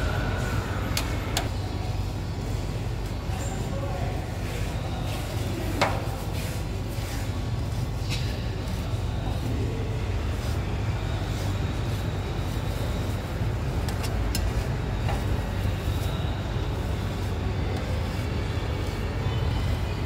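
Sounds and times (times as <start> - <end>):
spatulas scraping ice cream: 5.1 - 20.0.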